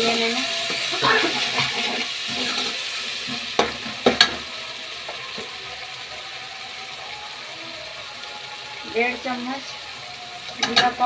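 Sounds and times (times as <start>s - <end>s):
food sizzling in oil: 0.0s - 11.0s
spoon knocking on pan: 3.3s - 4.5s, 10.5s - 11.0s.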